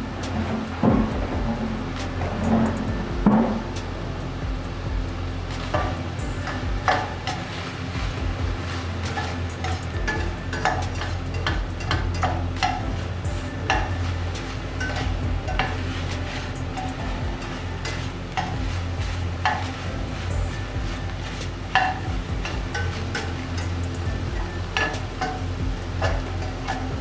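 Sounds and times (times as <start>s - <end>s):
spatula scraping a steel pan: 5.5s - 27.0s.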